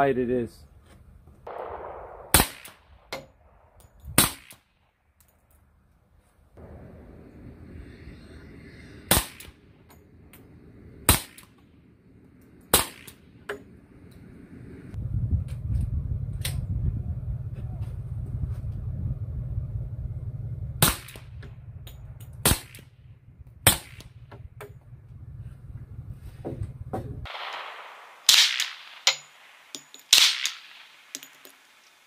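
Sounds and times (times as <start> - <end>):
muffled suppressed pistol shots: 1.5 - 4.7, 27.3 - 31.4.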